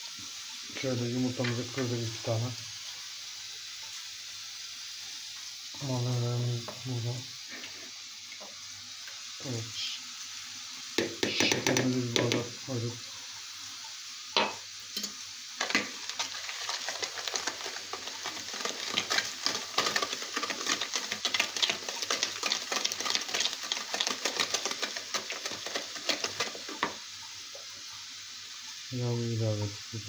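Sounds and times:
whisk knocking on bowl: 11.0 - 12.5, 17.3 - 27.0
whisk beating in plastic bowl: 16.2 - 27.0.

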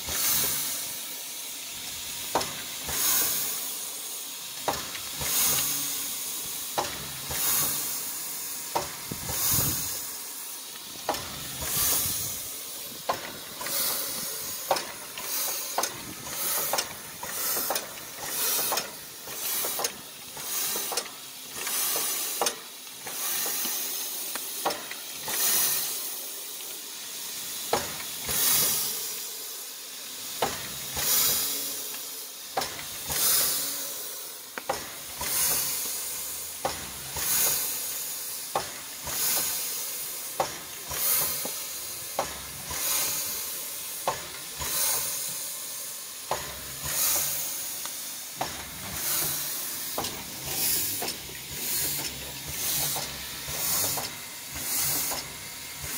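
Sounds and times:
steam locomotive puffing: 0.0 - 55.9
sharp metallic clicks: 13.1 - 20.0.

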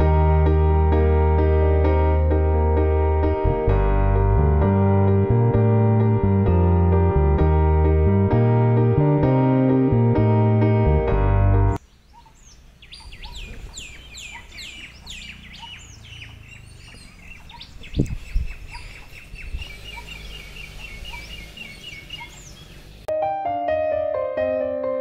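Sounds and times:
low rumbling background: 0.0 - 11.8
birds singing and chirping: 11.8 - 23.1.

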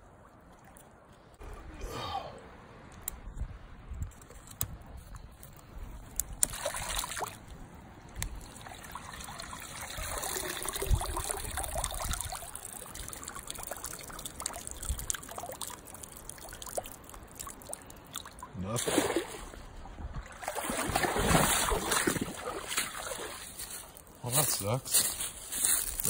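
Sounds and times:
swamp water trickling and sloshing: 0.0 - 2.8, 4.1 - 26.0.

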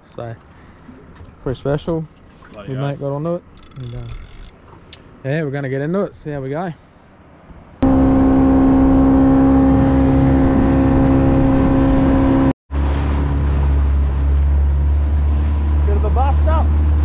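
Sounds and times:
outboard motor running: 7.8 - 17.0.

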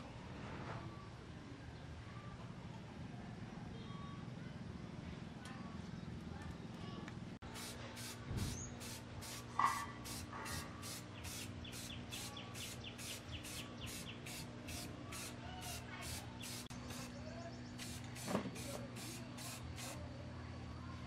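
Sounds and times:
spray-paint can hissing: 7.5 - 17.2, 17.8 - 20.0.

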